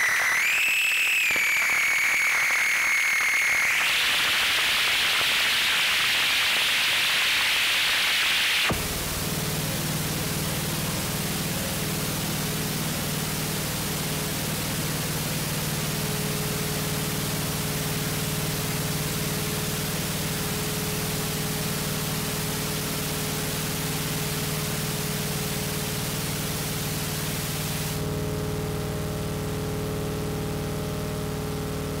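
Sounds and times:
white-noise hiss: 3.9s - 28.1s.

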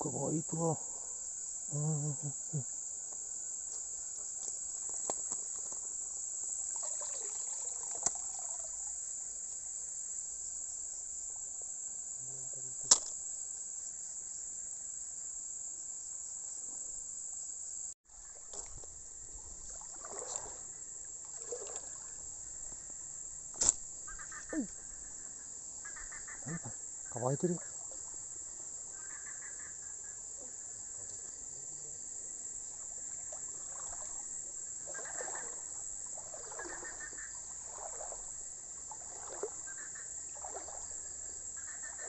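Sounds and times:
crickets chirring: 0.0s - 42.0s
sharp clicks: 12.8s - 13.2s, 23.5s - 23.9s.

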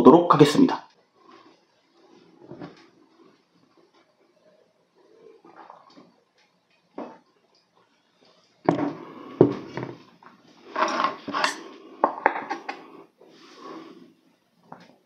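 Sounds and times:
glass bottle knocking on table: 8.7s - 10.0s.

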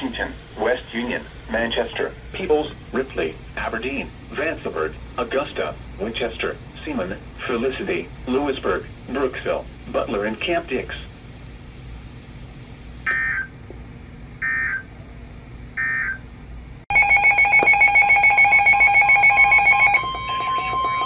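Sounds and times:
electronic alarms beeping: 13.1s - 13.5s, 14.4s - 14.9s, 15.8s - 16.2s, 16.9s - 21.0s
steady warning alarm tone: 13.1s - 13.6s, 14.4s - 14.9s, 15.8s - 16.3s, 16.9s - 21.0s.

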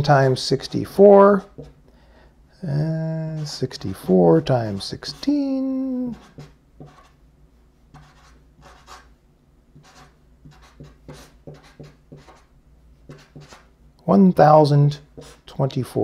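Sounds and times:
felt-tip marker writing: 6.1s - 7.2s, 7.9s - 9.1s, 9.8s - 12.5s.

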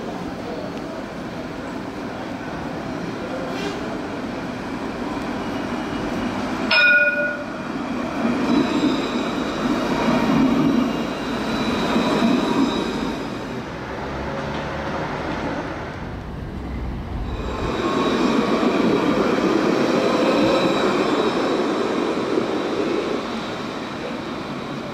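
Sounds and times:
tram wheels rumbling on rails: 0.0s - 24.9s
tram warning bell ding: 6.7s - 7.7s
high whine: 15.9s - 18.8s.

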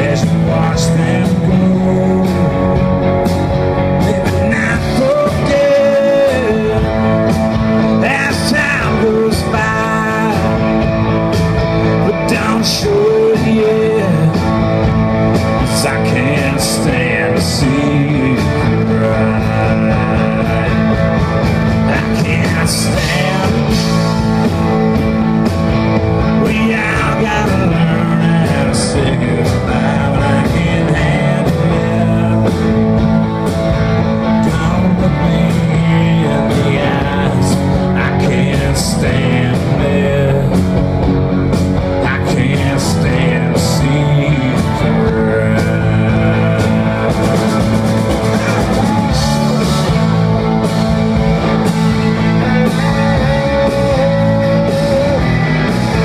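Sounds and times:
electric guitars: 0.0s - 56.0s
live rock band playing: 0.0s - 56.0s
drum hits: 45.3s - 56.0s.

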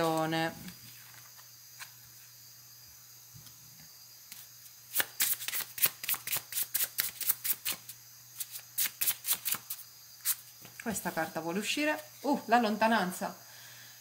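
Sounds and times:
cards snapping while shuffled: 4.3s - 10.9s.

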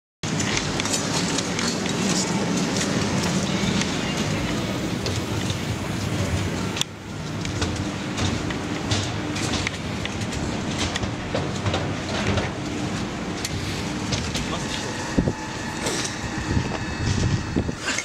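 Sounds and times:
rail station rumble and hum: 0.2s - 18.0s
footsteps: 7.3s - 18.0s.

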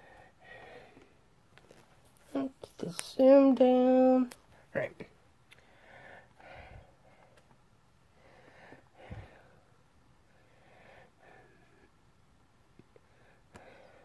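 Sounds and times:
faint breaths: 0.0s - 1.2s, 5.5s - 12.0s, 13.0s - 14.0s.

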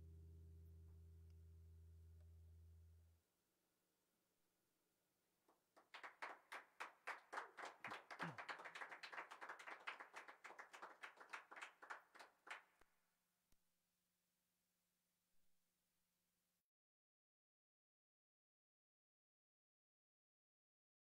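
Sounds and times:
audience clapping: 5.7s - 12.8s.

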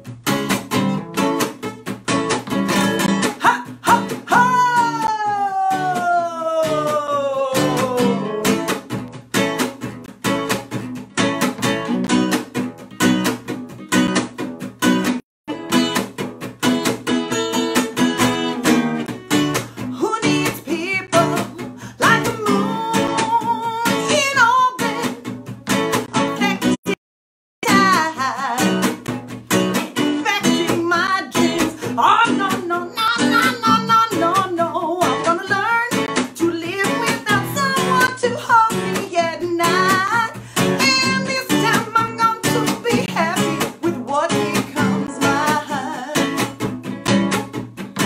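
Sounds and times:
acoustic guitar strumming: 0.0s - 27.0s, 27.6s - 48.0s
woman singing: 3.2s - 8.6s, 19.8s - 25.2s, 26.2s - 27.0s, 27.6s - 29.1s, 30.0s - 46.6s.

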